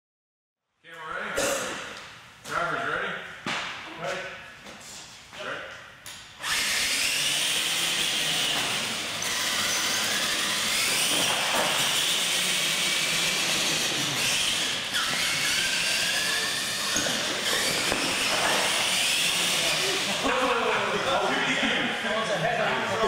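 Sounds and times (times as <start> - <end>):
toy truck electric motors whining: 6.4 - 21.2.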